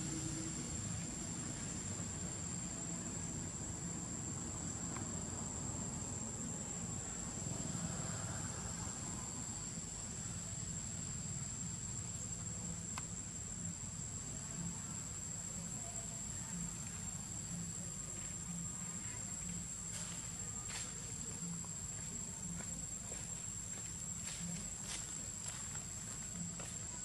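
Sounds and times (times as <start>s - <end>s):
insects droning: 0.0s - 27.0s
faint ticks: 12.9s - 13.2s.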